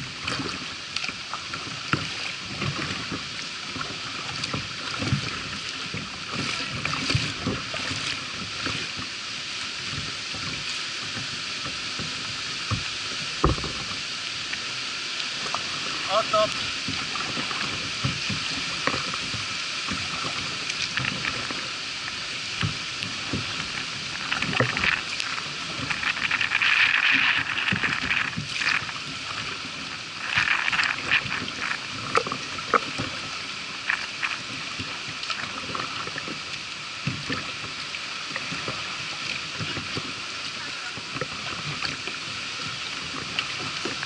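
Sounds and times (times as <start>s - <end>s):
paddle strokes in water: 0.0s - 44.0s
water splashing against hull: 0.0s - 44.0s
small knocks: 12.7s - 13.9s.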